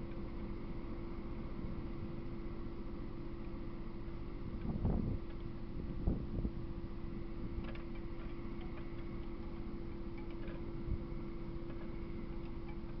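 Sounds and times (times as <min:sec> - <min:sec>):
electrical hum: 0:00.0 - 0:13.0
wind rumbling on microphone: 0:04.4 - 0:06.7, 0:10.7 - 0:11.3.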